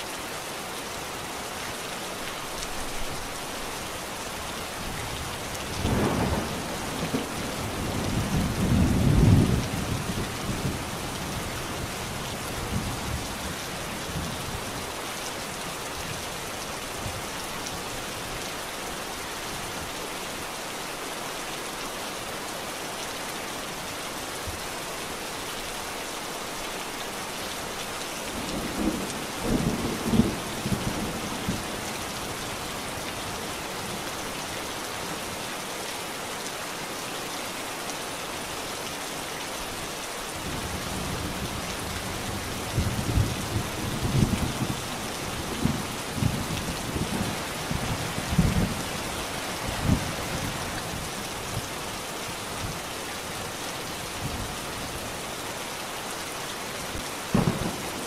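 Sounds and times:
steady rain falling: 0.0s - 58.0s
thunder rumbling: 57.3s - 58.0s.

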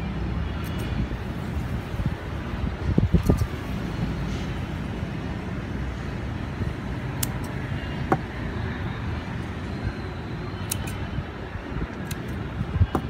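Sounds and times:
scissors snipping stems: 3.2s - 3.5s, 7.1s - 7.6s, 10.6s - 11.0s, 11.9s - 13.0s.

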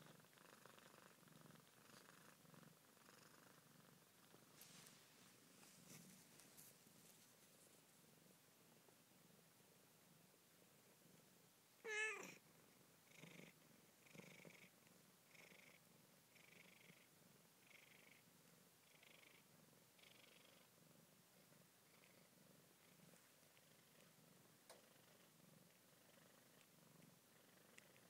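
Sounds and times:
cat purring: 0.0s - 28.0s
cat mewing: 11.8s - 12.4s.

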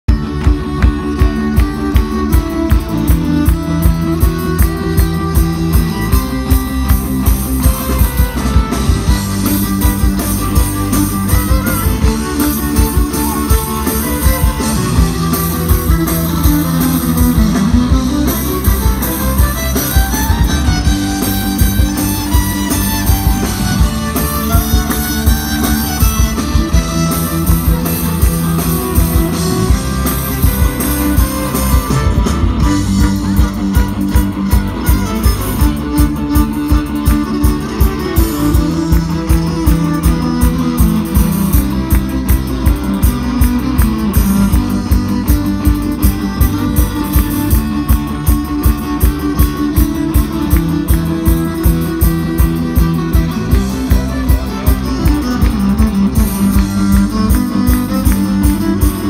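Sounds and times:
electric guitars: 0.0s - 59.0s
fiddle: 0.0s - 59.0s
driving drumbeat: 0.1s - 59.0s.

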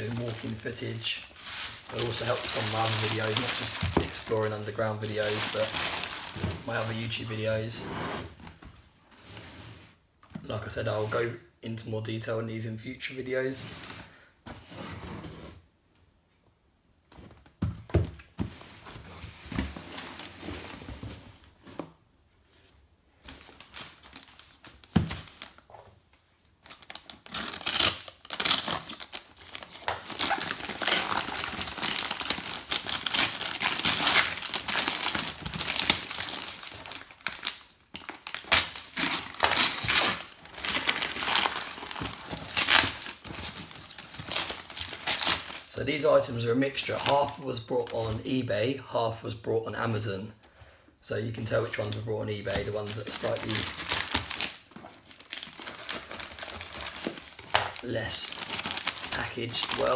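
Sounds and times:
paper tearing and crumpling: 0.0s - 6.4s, 55.2s - 59.9s.

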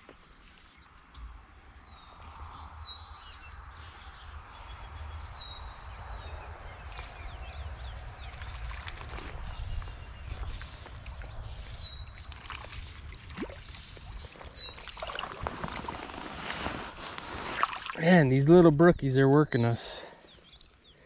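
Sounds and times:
wind rumble on microphone: 0.8s - 17.6s
water sloshing: 12.2s - 18.0s.

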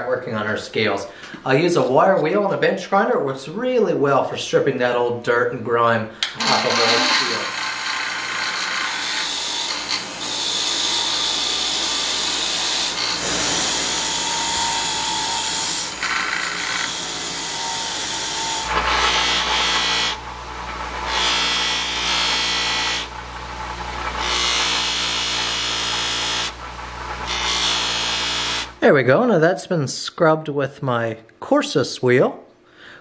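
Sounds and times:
grinder motor hum: 6.3s - 28.8s
wire wheel scratching blade: 6.3s - 28.8s.

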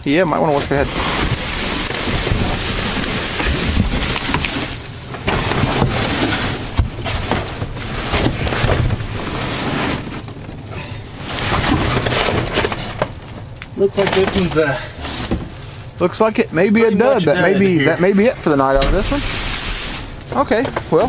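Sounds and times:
plastic crinkling: 0.3s - 17.3s, 17.9s - 21.0s
cardboard scraping: 0.5s - 13.2s, 14.0s - 15.8s, 18.5s - 21.0s
low rumble on microphone: 18.6s - 20.4s.

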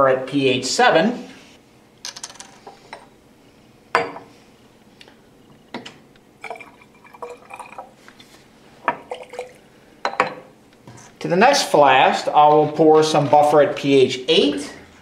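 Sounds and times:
glass flasks knocking and clinking: 6.4s - 7.9s, 8.9s - 10.5s
liquid gurgling trickle: 6.4s - 8.1s, 9.0s - 9.7s.

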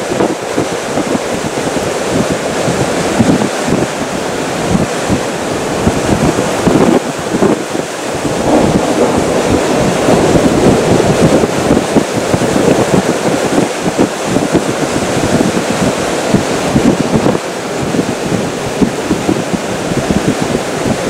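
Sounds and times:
strong gusty wind on microphone: 0.0s - 21.0s.

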